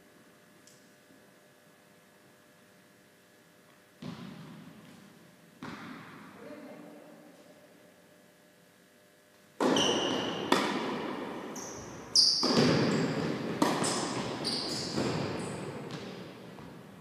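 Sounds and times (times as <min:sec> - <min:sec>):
tennis balls bouncing on court: 0:04.0 - 0:05.0, 0:05.6 - 0:06.3, 0:09.6 - 0:17.0
racket hitting tennis ball: 0:09.6 - 0:16.9.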